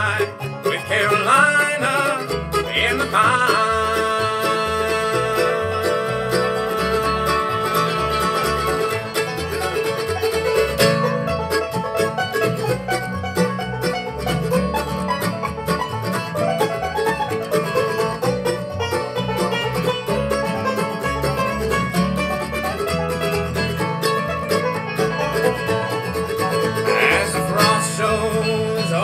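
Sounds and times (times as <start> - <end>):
banjo: 0.0 - 29.0
bluegrass band playing: 0.0 - 29.0
upright bass beat: 0.0 - 29.0.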